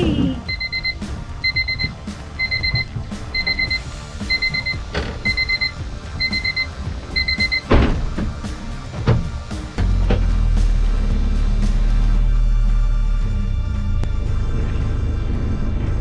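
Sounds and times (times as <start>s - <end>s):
rapid high-pitched beeps: 0.5s - 7.7s.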